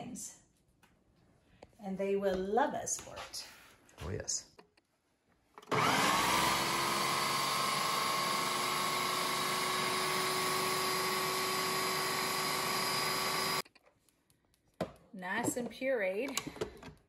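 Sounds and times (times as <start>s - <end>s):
food processor motor whine: 5.6s - 13.6s.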